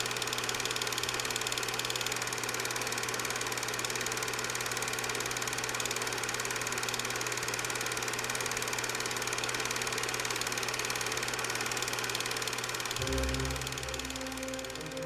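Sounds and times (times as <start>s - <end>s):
low mechanical hum: 12.8s - 15.0s.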